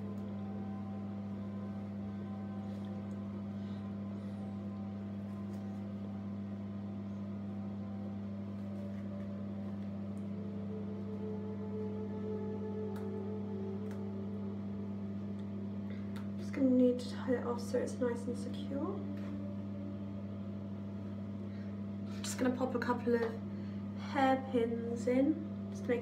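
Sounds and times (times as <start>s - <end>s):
faint sustained tones: 0.0s - 26.0s
steady low hum: 0.0s - 26.0s.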